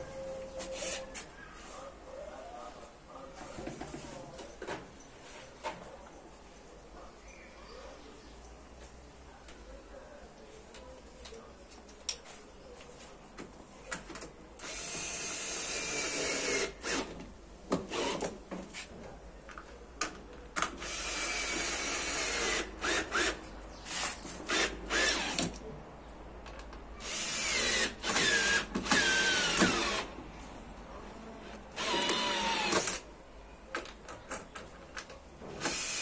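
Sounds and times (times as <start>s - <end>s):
cordless drill motor whining: 14.6s - 17.0s, 27.0s - 30.0s, 31.8s - 33.0s.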